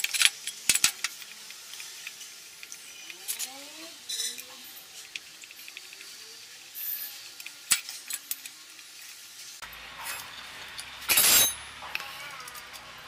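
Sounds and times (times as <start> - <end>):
metal tool clinking on metal: 4.1 - 4.5, 10.0 - 12.9.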